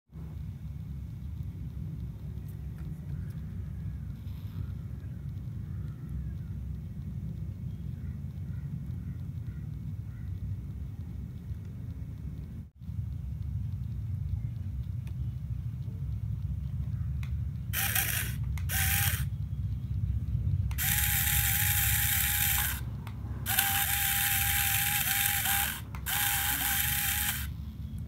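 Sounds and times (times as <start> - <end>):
small electric motor whirring: 17.7 - 19.3, 20.7 - 27.6.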